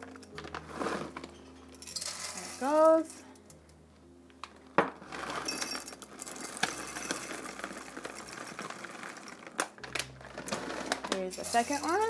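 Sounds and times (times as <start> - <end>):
chocolate chips pouring into cup: 1.8 - 3.1, 5.0 - 12.0.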